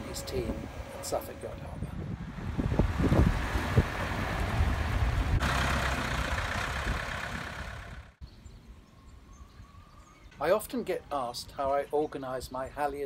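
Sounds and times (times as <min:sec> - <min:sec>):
heavy diesel engine running: 0:00.0 - 0:08.2.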